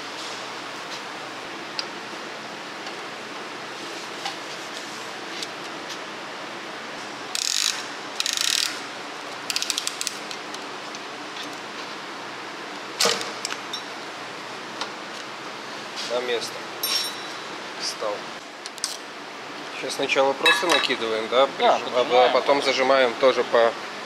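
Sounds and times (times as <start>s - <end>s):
ratchet wrench clicking: 7.3s - 8.8s, 9.5s - 10.3s.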